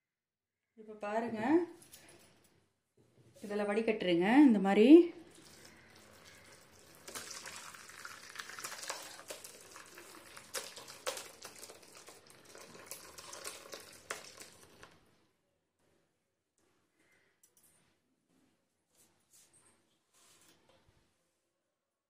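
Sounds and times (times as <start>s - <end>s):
liquid pouring and splashing: 5.2s - 15.0s.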